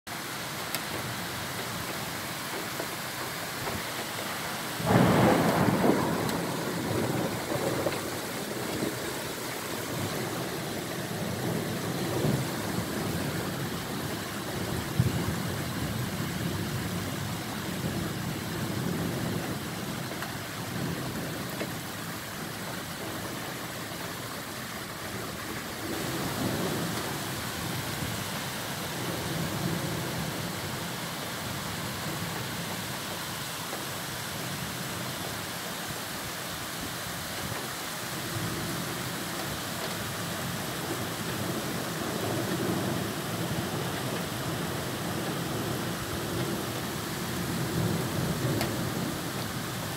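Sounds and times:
heavy rain pouring: 0.1s - 49.9s
thunder rumbling: 4.8s - 21.8s, 22.4s - 30.9s.

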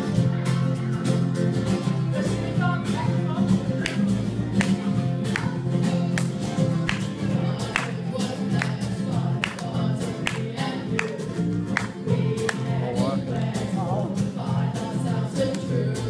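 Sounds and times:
guitar: 0.0s - 16.0s
group singing: 3.7s - 16.0s.

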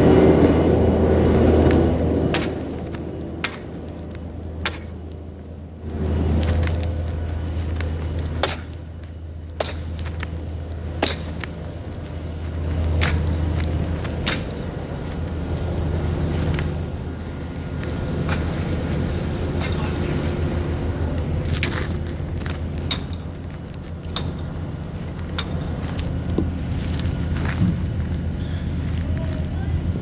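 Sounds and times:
heavy engine droning: 0.0s - 30.0s
sharp clicks and knocks: 1.6s - 28.3s.

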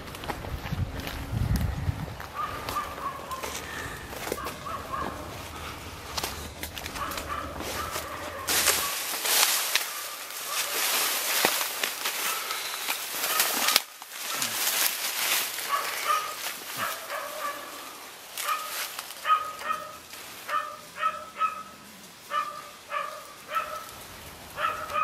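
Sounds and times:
dry reeds rustling: 0.0s - 25.0s
dog yapping: 2.3s - 3.6s, 4.2s - 5.8s, 6.8s - 9.0s, 15.7s - 17.8s, 18.4s - 24.0s, 24.6s - 25.0s.

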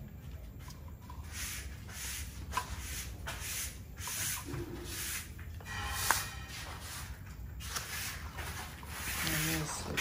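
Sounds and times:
sharp clink: 5.6s - 6.8s.

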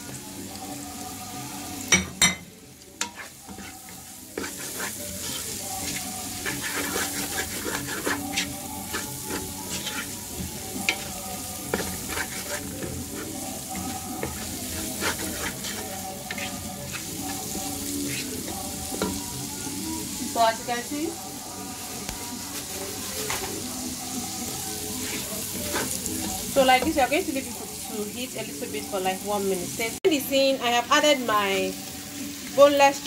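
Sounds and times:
onions sizzling in oil: 0.0s - 33.0s
wooden spoon scraping pan: 3.0s - 19.1s, 25.0s - 26.9s.

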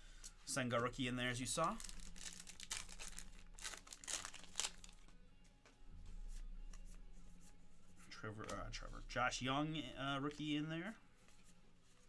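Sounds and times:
cards rustling: 1.4s - 5.1s
plastic wrapper tearing and crinkling: 1.6s - 5.1s.

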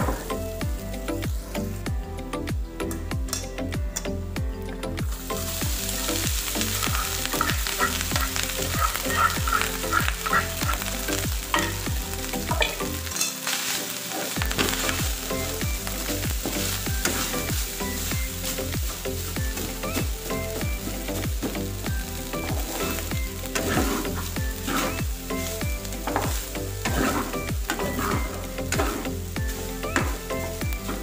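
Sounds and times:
garlic rice sizzling in pan: 5.0s - 31.0s
metal spatula stirring: 6.8s - 21.6s, 22.6s - 30.2s.

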